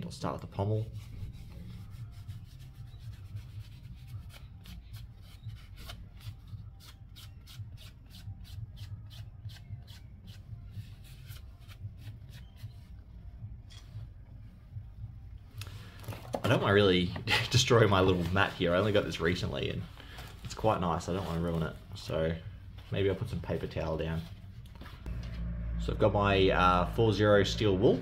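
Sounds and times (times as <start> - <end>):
cloth rag rubbing metal: 0.8 - 5.5.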